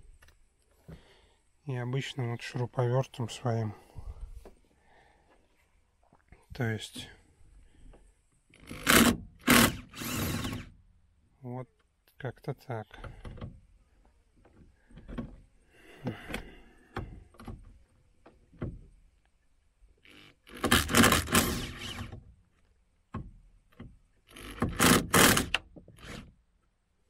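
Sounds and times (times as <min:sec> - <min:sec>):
cordless drill motor: 0:08.5 - 0:10.8, 0:20.0 - 0:22.2, 0:24.3 - 0:26.3.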